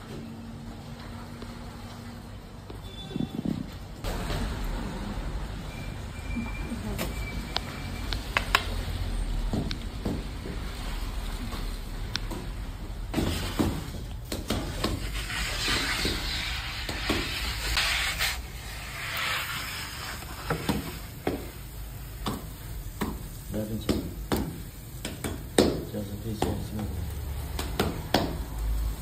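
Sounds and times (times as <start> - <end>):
food sizzling on metal tray: 15.0 - 25.1.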